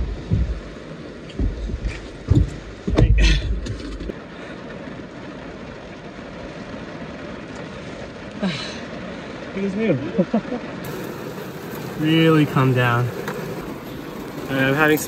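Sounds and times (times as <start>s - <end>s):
dull bumps: 0.0s - 4.2s.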